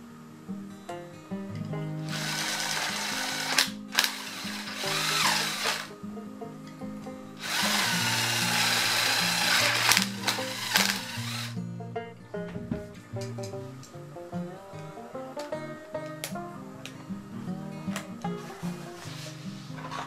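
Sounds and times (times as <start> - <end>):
impact driver drilling metal: 2.1 - 5.9, 7.4 - 11.5.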